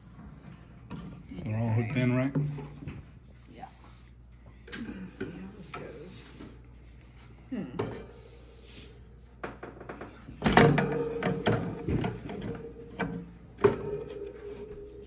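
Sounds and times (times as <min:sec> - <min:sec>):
wire cage top clanking on glass: 0:10.4 - 0:14.7.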